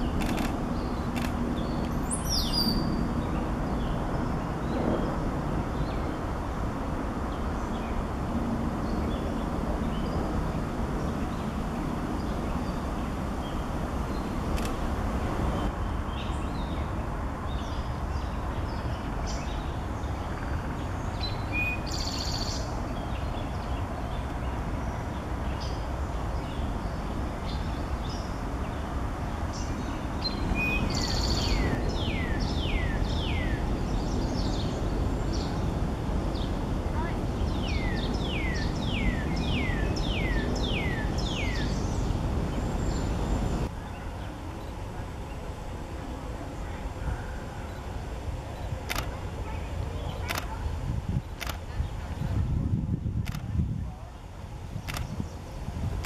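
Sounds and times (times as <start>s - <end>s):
songbird chirps and calls: 0.0s - 6.2s, 15.5s - 45.6s.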